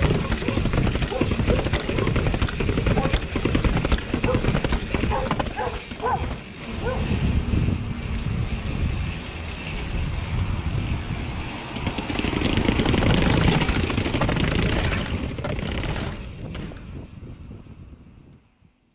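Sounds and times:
bike tyres thumping on steps: 0.0s - 6.4s
chain and frame rattling: 0.0s - 7.0s, 11.7s - 16.7s
wind noise on microphone: 0.0s - 18.9s.

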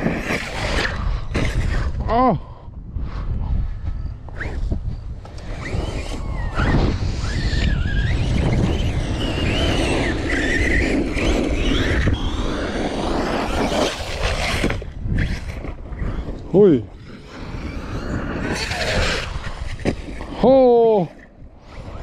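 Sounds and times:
electric motor whining: 4.2s - 20.5s.

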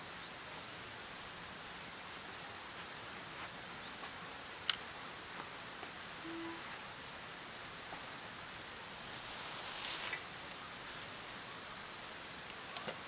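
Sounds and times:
steady outdoor hiss: 0.0s - 13.0s
low hoot-like tone: 6.2s - 6.7s.

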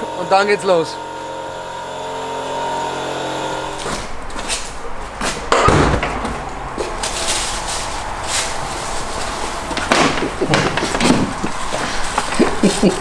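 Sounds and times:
steady hum: 0.0s - 13.0s
rustling and knocking: 3.9s - 13.0s
car door thud: 5.5s - 6.4s.

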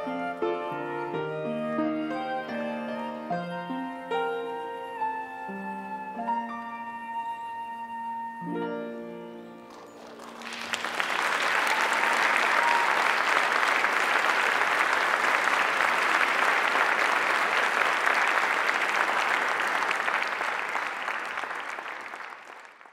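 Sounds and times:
audience applauding: 9.7s - 22.9s.

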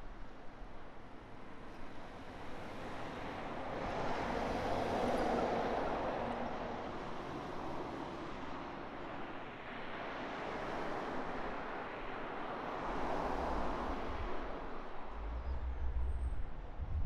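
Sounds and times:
passing vehicle traffic: 12.8s - 17.0s.

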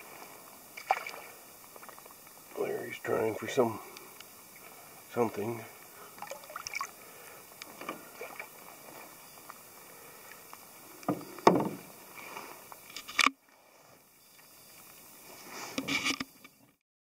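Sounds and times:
paddle strokes swishing through water: 0.0s - 2.1s, 5.9s - 12.9s
faint steady hiss: 0.0s - 16.8s.

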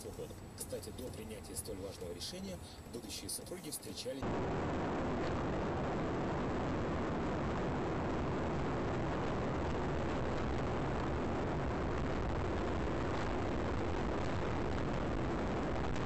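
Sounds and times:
road and engine noise in car: 0.0s - 4.2s.

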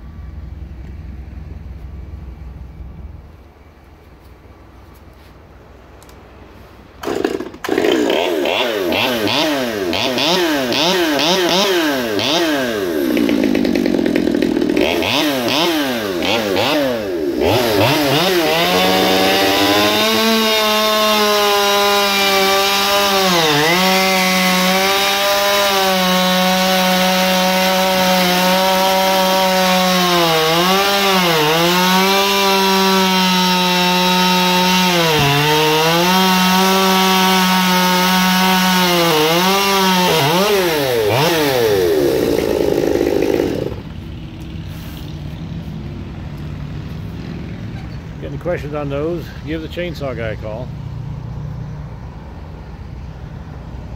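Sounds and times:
chainsaw revving and cutting wood: 7.0s - 45.5s.

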